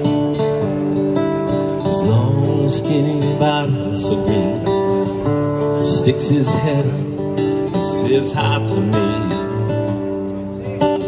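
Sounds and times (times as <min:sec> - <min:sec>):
acoustic guitar strumming chords: 0:00.0 - 0:11.0.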